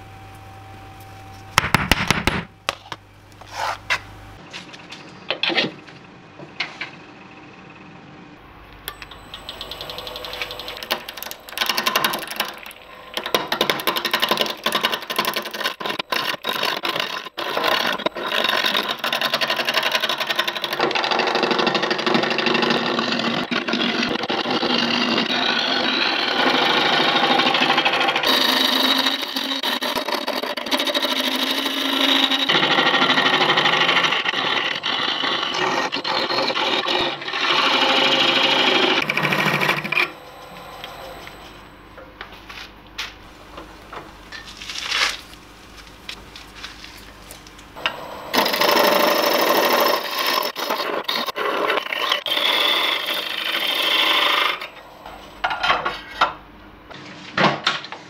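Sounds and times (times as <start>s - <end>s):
lathe tool cutting wood: 8.5s - 41.7s, 47.8s - 56.2s.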